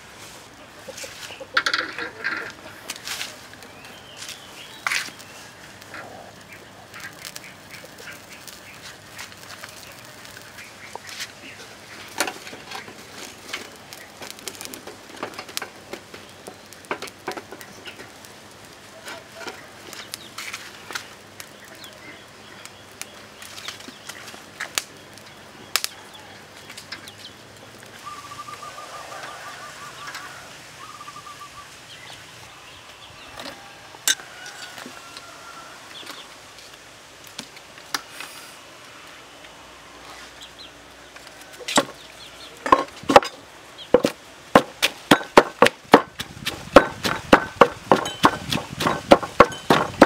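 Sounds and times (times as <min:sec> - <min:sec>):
open fire crackling and popping: 0:00.0 - 0:50.0
birds chirping: 0:00.4 - 0:14.6, 0:18.8 - 0:36.4, 0:38.6 - 0:44.8
bird trilling: 0:28.0 - 0:31.8.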